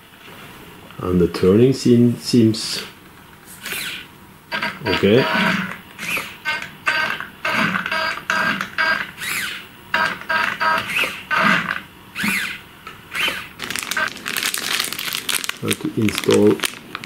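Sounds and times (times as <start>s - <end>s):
small electric motors whirring: 3.6s - 9.7s, 10.6s - 15.0s
plastic bag crinkling: 13.2s - 17.0s.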